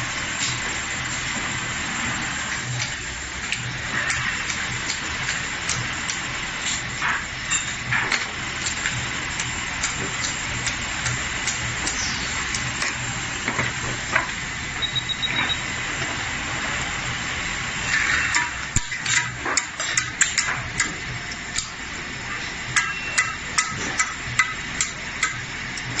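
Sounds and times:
high beeps: 0:14.8 - 0:15.7.

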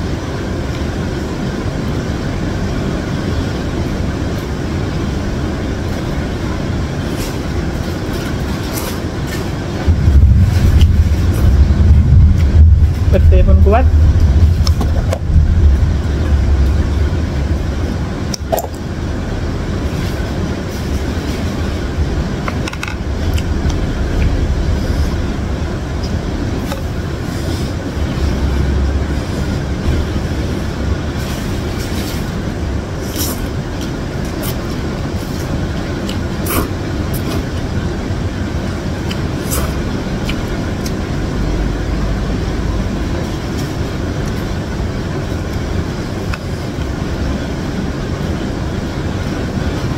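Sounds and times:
heavy rain: 0:00.0 - 0:49.9
noodle eating sounds: 0:29.0 - 0:37.7, 0:39.0 - 0:41.0.

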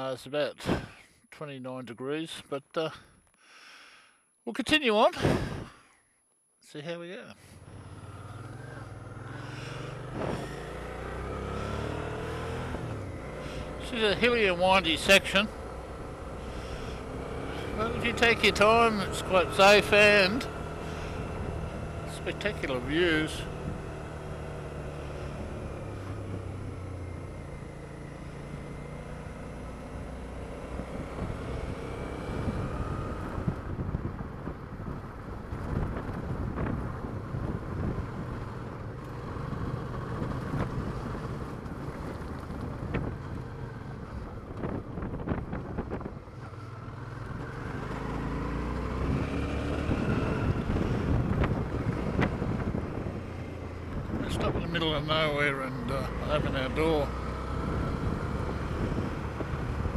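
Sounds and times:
wind rush on microphone: 0:05.2 - 0:05.8, 0:32.2 - 0:38.9, 0:40.0 - 0:46.6, 0:49.0 - 0:55.0, 0:57.6 - 0:59.9
motorcycle engine running: 0:07.6 - 0:59.9
stones ticking under tyres: 0:41.4 - 0:43.5.

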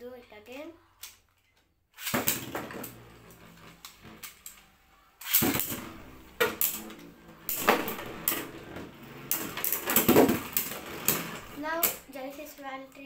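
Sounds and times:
launcher string rip: 0:02.0 - 0:04.6, 0:05.2 - 0:12.1
spinning tops clashing: 0:02.0 - 0:04.6, 0:05.2 - 0:12.1
spinning tops scraping plastic bowl: 0:02.0 - 0:12.6.

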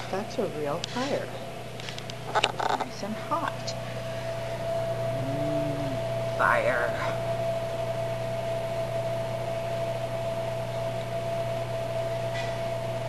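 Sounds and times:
heater fan hum and whir: 0:00.0 - 0:13.0
constant whine: 0:00.1 - 0:12.1.

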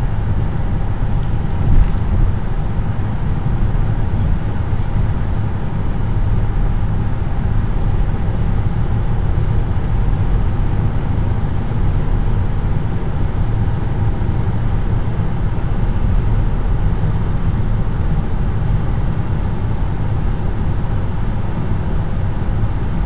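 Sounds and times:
car engine running: 0:00.0 - 0:23.0
tyres rumbling on pavement: 0:00.5 - 0:06.0.

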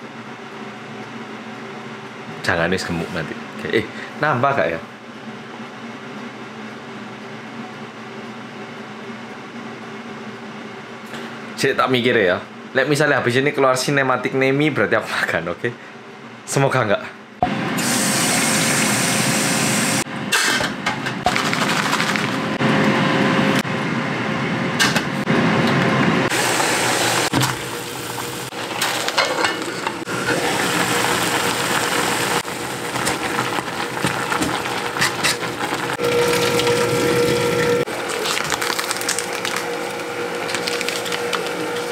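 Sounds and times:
noodles boiling in water: 0:30.0 - 0:41.9.

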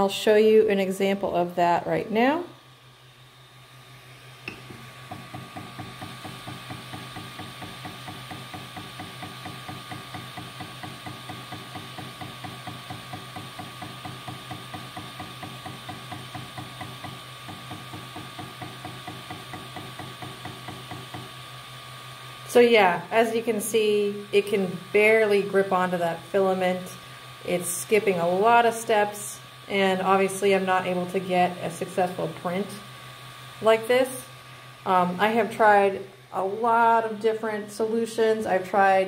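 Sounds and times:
printer hum: 0:01.9 - 0:37.2
stepper motor clicking knock: 0:04.4 - 0:21.4.

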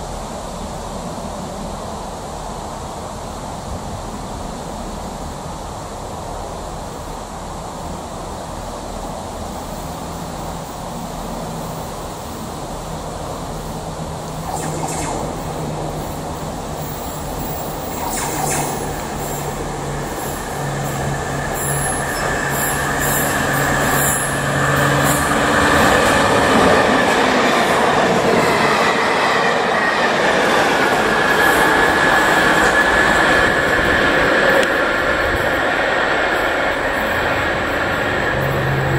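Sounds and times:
wheels rushing on rails: 0:09.4 - 0:38.9
train passing: 0:09.7 - 0:38.9
high whine: 0:13.5 - 0:38.9
low hum: 0:14.2 - 0:26.1.

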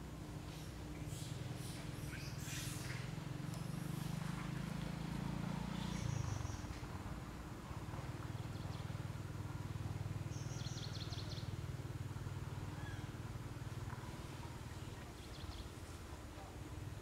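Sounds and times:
low outdoor hum: 0:00.0 - 0:17.0.

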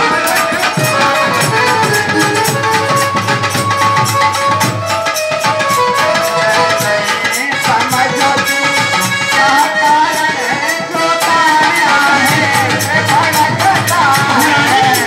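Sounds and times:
hand drum strokes: 0:00.0 - 0:07.0
held melody notes: 0:00.0 - 0:07.6
wavering melodic line: 0:00.4 - 0:07.0.

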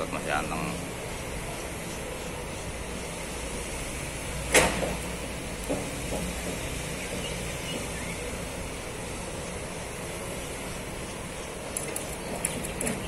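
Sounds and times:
outdoor background rumble: 0:00.0 - 0:13.0
sharp knock: 0:04.5 - 0:05.0.

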